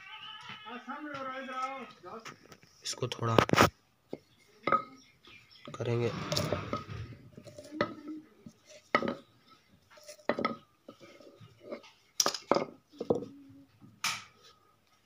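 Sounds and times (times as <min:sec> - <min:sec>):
hard objects clinking on concrete: 0:07.4 - 0:13.3.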